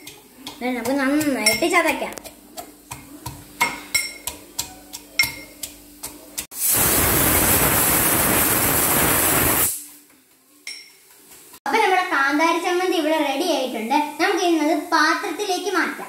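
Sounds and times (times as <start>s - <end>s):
loud steady hiss: 6.5s - 9.9s.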